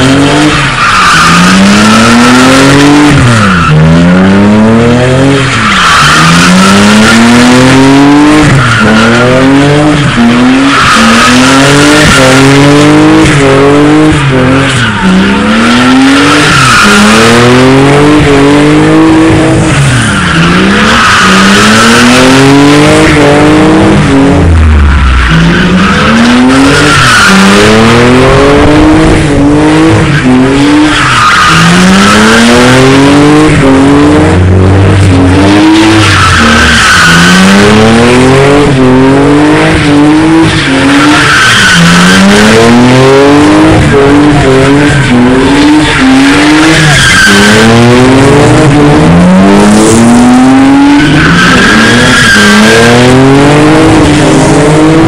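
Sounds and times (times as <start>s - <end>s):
car engine revving: 0.0s - 55.0s
tyres screeching: 35.0s - 55.0s.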